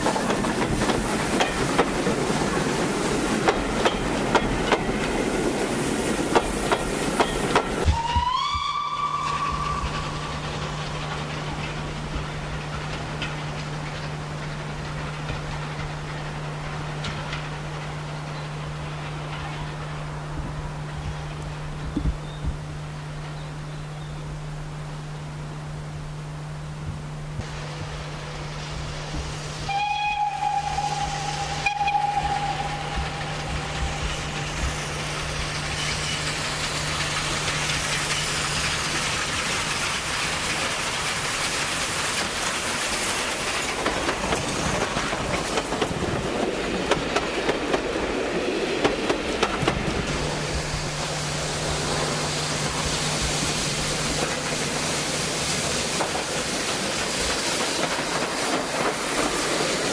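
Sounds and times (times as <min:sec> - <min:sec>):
wheels clicking over rail joints: 0:00.0 - 0:23.6, 0:29.1 - 0:50.6, 0:51.9 - 0:59.9
steam train passing: 0:00.0 - 0:59.9
steam whistle blast: 0:07.8 - 0:10.3, 0:29.6 - 0:34.6.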